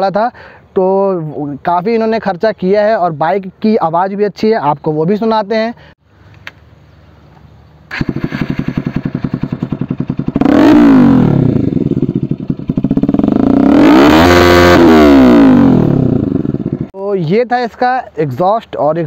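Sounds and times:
motorcycle engine idling and revving: 7.8s - 17.0s.

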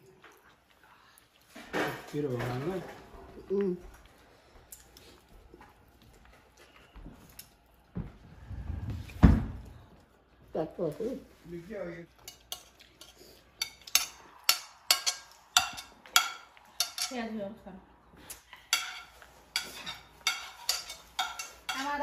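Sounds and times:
forks clinking on plates: 12.2s - 17.2s, 18.6s - 22.0s.

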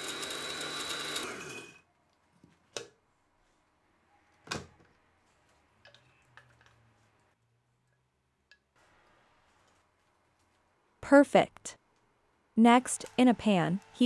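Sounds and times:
blender motor winding down: 0.0s - 1.8s.

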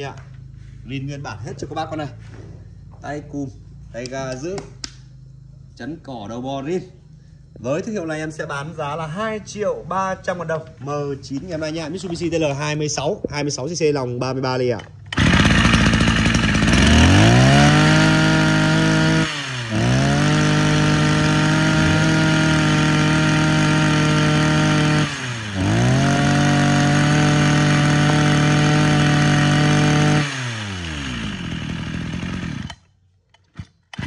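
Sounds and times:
brush cutter engine revving: 14.9s - 34.0s.

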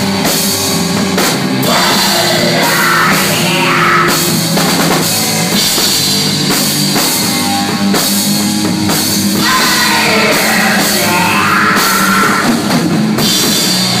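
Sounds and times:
heavy rock band playing: 0.0s - 14.0s.

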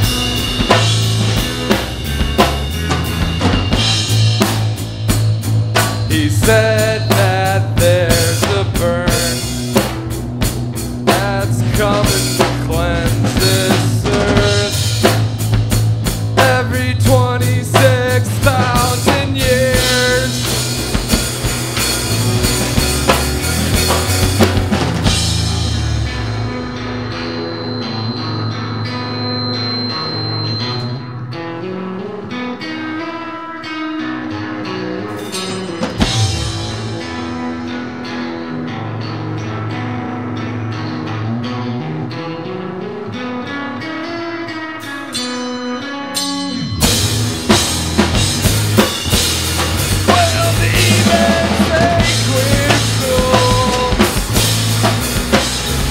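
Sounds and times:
drum kit: 0.0s - 31.0s, 35.1s - 38.2s, 46.1s - 55.9s
bass guitar: 0.0s - 55.9s
electric guitar: 0.0s - 55.9s.

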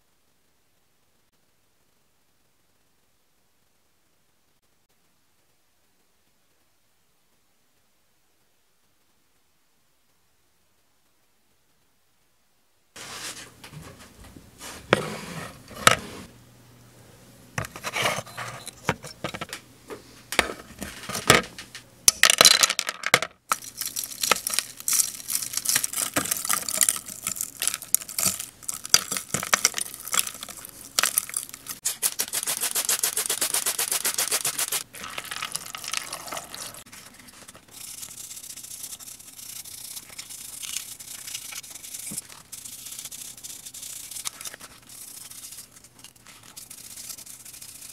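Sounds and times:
brush scrubbing in soapy water: 29.7s - 45.7s.

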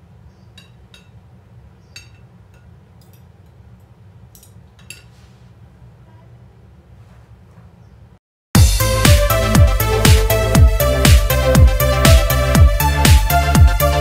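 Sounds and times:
cutlery clinking on ceramic plate: 0.6s - 1.2s, 2.0s - 3.3s, 4.4s - 5.2s.

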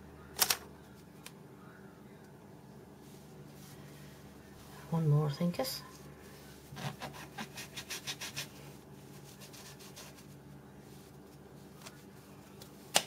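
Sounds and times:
faint steady hum: 0.0s - 13.0s
cutter rubbing through sugarpaste: 6.8s - 8.5s.

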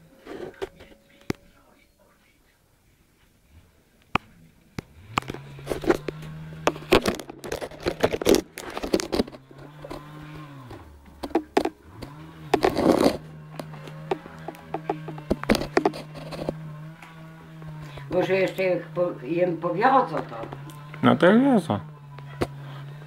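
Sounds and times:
engine running: 3.4s - 23.0s
timber knocking and clattering: 5.2s - 16.6s.

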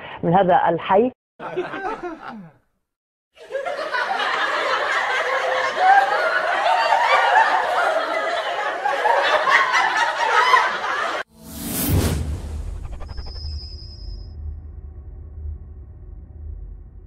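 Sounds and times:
crowd laughing: 1.4s - 2.6s, 3.4s - 11.3s.

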